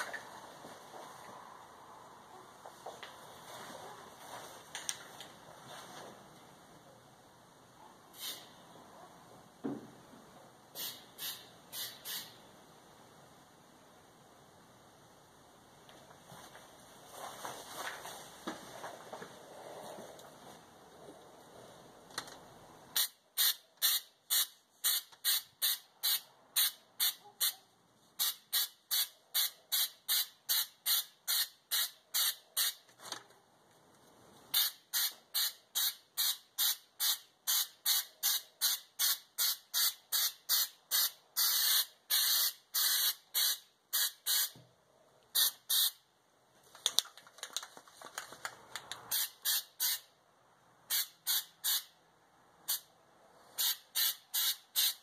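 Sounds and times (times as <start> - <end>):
aerosol can spraying in bursts: 8.2 - 8.5, 10.8 - 12.4, 23.0 - 27.6, 28.2 - 32.8, 34.5 - 44.6, 45.4 - 46.0, 49.1 - 50.1, 50.9 - 51.9, 53.6 - 55.0.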